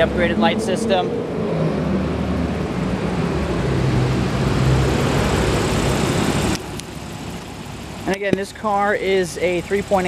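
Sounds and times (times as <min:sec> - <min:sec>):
vehicle rushing noise: 0:00.0 - 0:06.8
low engine hum: 0:00.0 - 0:10.0.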